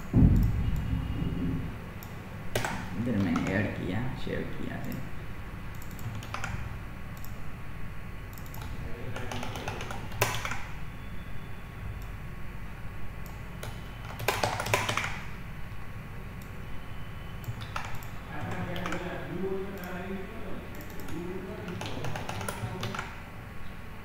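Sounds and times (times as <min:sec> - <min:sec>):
low background hum: 0:00.0 - 0:24.0
computer keyboard typing: 0:02.0 - 0:03.8, 0:04.7 - 0:05.1, 0:05.7 - 0:07.4, 0:08.3 - 0:10.8, 0:13.2 - 0:15.4, 0:17.3 - 0:23.2.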